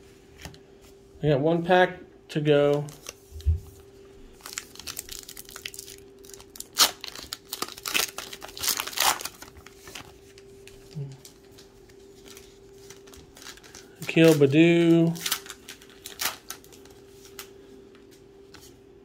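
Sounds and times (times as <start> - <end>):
card pack wrapper tearing: 4.4 - 10.1, 12.3 - 16.9.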